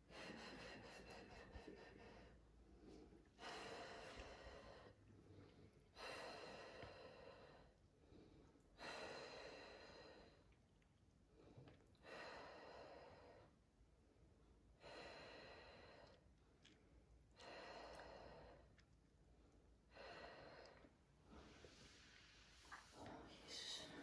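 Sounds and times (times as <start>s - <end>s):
woman breathing deeply: 0.0s - 10.5s, 12.0s - 13.6s, 14.8s - 16.2s, 17.4s - 18.8s, 19.9s - 22.8s.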